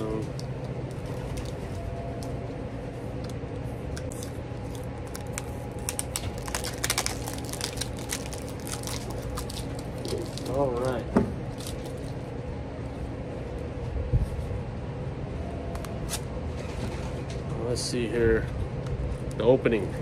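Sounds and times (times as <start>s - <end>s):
plastic packaging tearing and crinkling: 4.1s - 12.1s.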